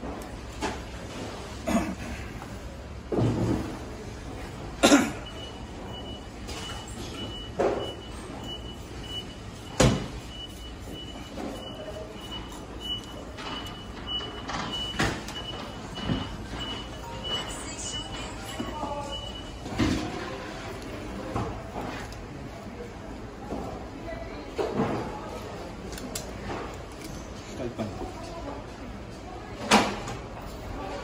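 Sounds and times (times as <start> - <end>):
high electronic beep: 5.3 - 19.7.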